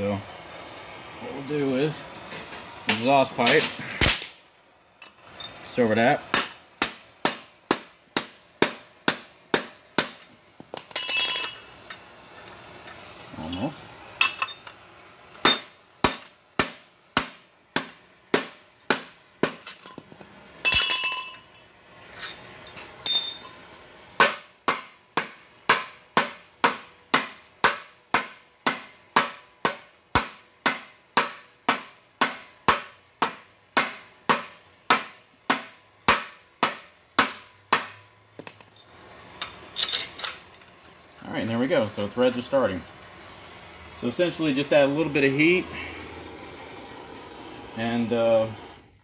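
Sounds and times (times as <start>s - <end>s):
hammer tapping on metal: 6.3s - 11.4s, 24.2s - 38.6s
metal clatter: 10.8s - 13.6s, 19.5s - 23.8s, 38.5s - 40.8s.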